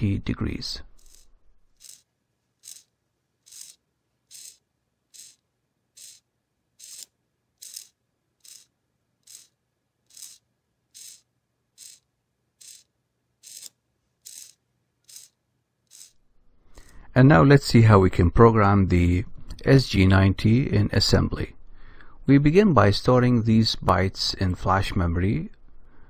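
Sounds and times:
servo motor whirring: 1.0 - 16.2.

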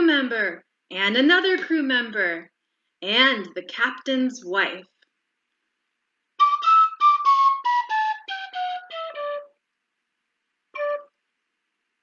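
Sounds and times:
flute-like descending notes: 6.4 - 9.5, 10.8 - 11.1.

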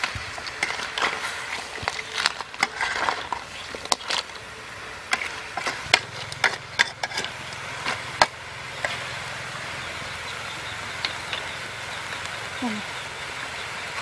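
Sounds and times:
metal spatula scraping wok: 0.0 - 9.2
frying sizzle: 0.0 - 14.0.

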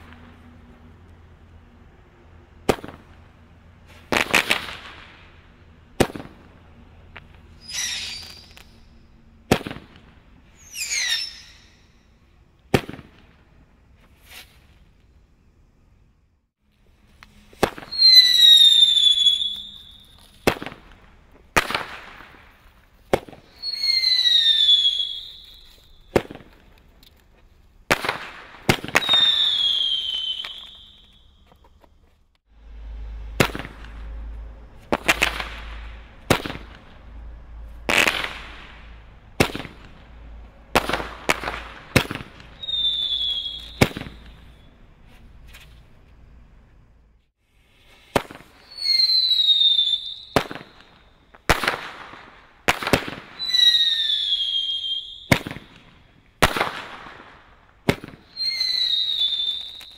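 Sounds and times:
falling whistle of fireworks: 2.5 - 15.6, 16.7 - 26.9, 27.8 - 31.8, 32.5 - 46.3, 47.4 - 59.9
low rumble: 32.5 - 40.8.

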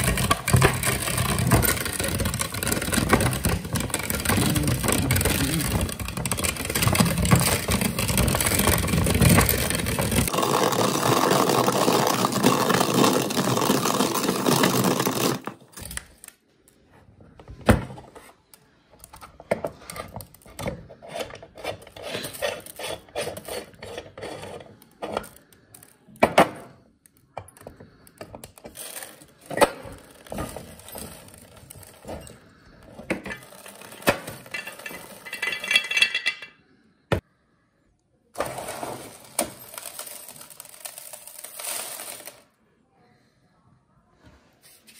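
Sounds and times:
metal parts knocking: 0.0 - 10.3
grinder crunching dry spaghetti: 0.0 - 16.3, 28.4 - 35.4, 38.4 - 42.5.

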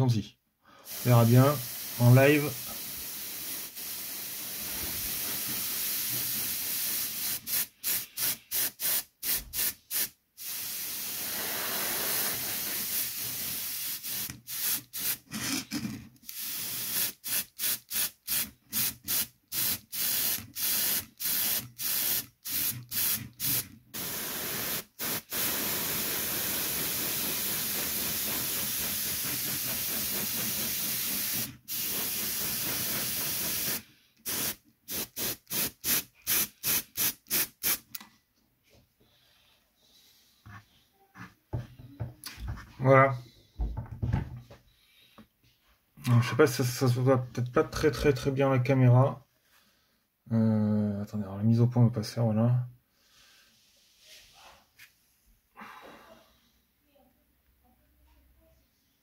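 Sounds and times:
airbrush hissing: 0.9 - 15.2, 16.3 - 37.9.

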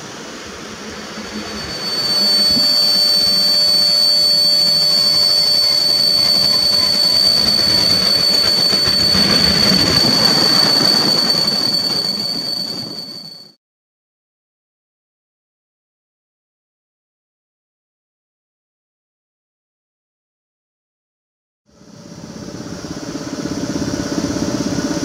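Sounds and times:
train coaches rumbling past: 0.1 - 13.4
high-pitched brake squeal: 0.3 - 13.6.

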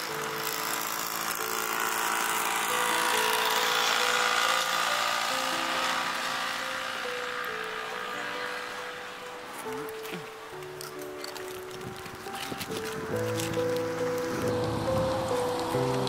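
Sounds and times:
slow melody of held notes: 0.0 - 16.0.

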